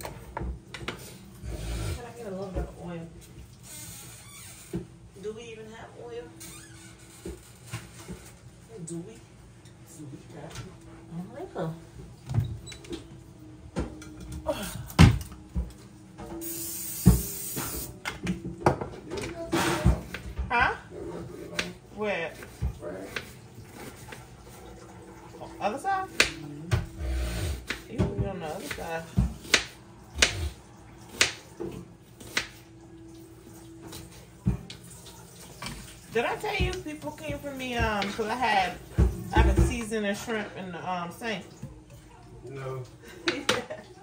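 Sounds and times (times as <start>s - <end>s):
hiss: 16.4s - 17.9s.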